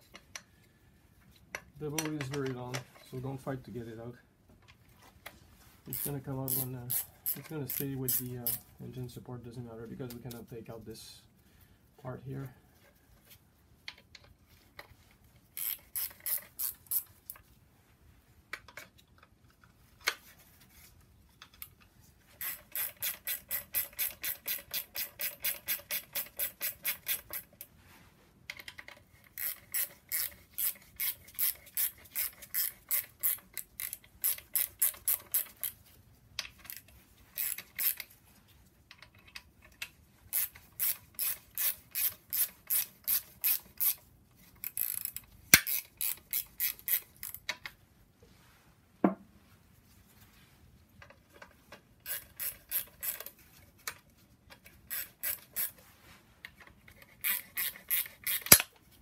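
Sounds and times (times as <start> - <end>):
ratchet wrench clicking: 5.9 - 8.6, 15.6 - 17.4, 22.4 - 27.7, 28.5 - 35.8, 36.4 - 38.1, 39.7 - 44.0, 44.6 - 47.7, 52.0 - 53.4, 54.6 - 55.8, 56.9 - 58.7.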